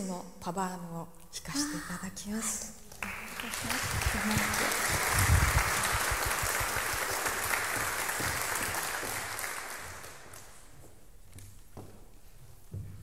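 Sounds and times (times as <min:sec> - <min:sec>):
audience applauding: 0:03.0 - 0:10.7.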